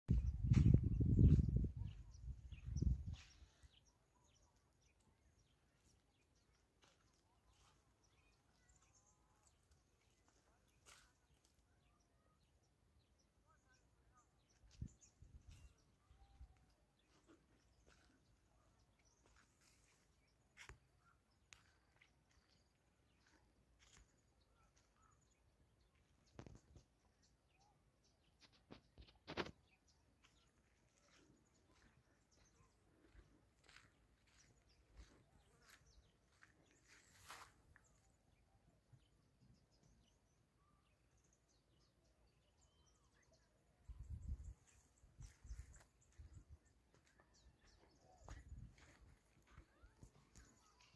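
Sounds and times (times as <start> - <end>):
wind buffeting microphone: 0.1 - 3.4, 43.8 - 46.6
bird chirps: 0.1 - 50.9.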